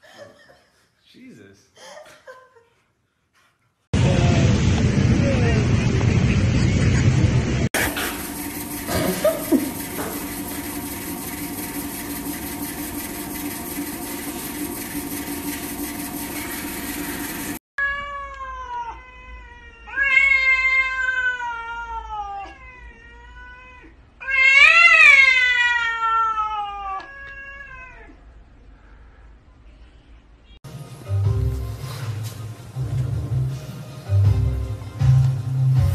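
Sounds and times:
robot vacuum whirring hum: 7.8s - 17.6s
cat yowling: 17.8s - 28.2s.

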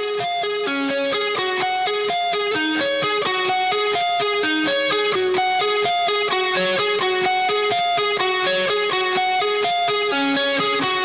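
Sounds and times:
guitar picking melody: 0.0s - 11.0s.

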